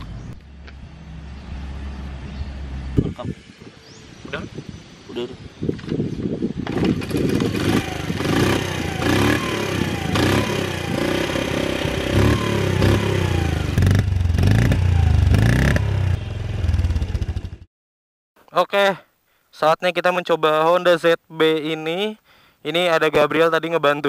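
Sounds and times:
motorcycle kick-start: 0:06.6 - 0:10.2
small engine revving: 0:06.6 - 0:17.6.

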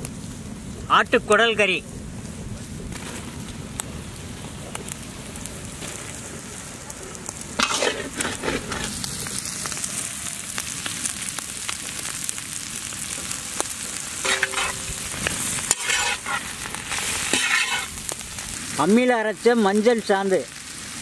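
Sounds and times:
food sizzling in hot oil: 0:02.6 - 0:21.0
spatula stirring pan: 0:07.6 - 0:09.1, 0:14.2 - 0:18.2.

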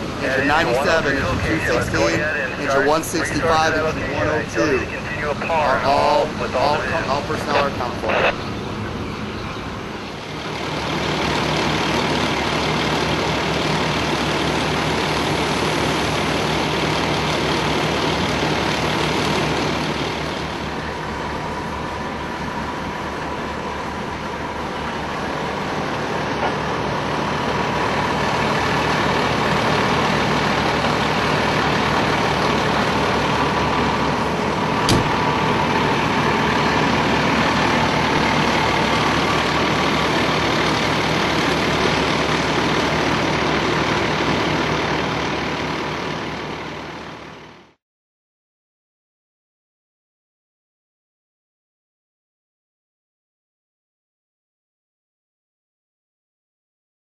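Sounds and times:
diesel engine idling: 0:00.0 - 0:47.8.

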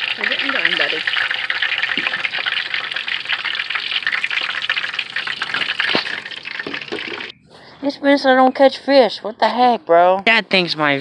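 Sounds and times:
fish fillets frying in grease: 0:00.0 - 0:07.3.

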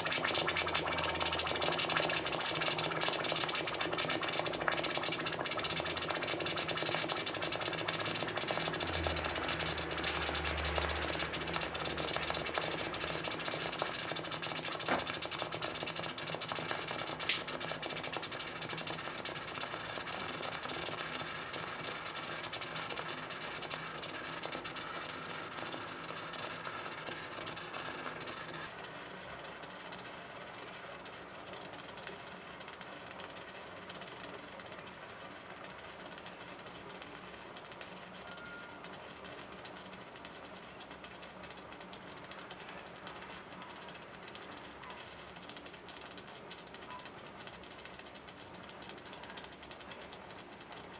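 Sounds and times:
hot metal sizzling and crackling: 0:00.0 - 0:50.9
sharp pops: 0:16.6 - 0:18.9.

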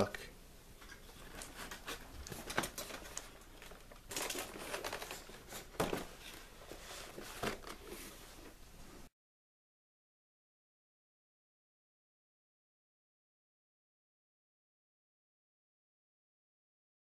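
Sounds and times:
cardboard box rustling: 0:01.4 - 0:08.2.

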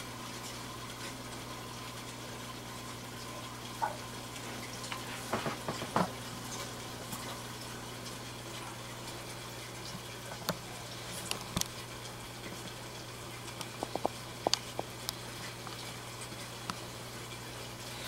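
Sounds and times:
aquarium filter humming: 0:00.0 - 0:18.0
fish splashing at water surface: 0:09.6 - 0:18.0.

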